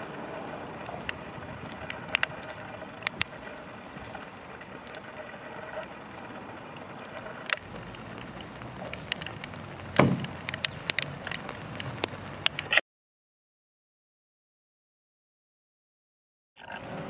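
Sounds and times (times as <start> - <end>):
handling clicks and knocks: 7.2 - 12.8
beacon clunking onto car roof: 9.9 - 10.6.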